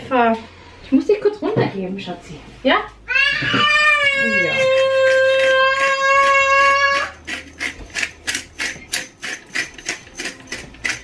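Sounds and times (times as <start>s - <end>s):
toddler crying: 3.1s - 7.2s
spice mill grinding: 4.2s - 11.0s.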